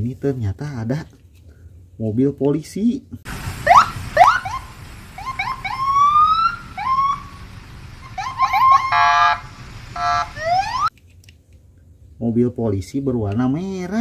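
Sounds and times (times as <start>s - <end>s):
buzzing horn blasts: 3.3s - 10.9s
electronic police siren: 3.3s - 10.9s.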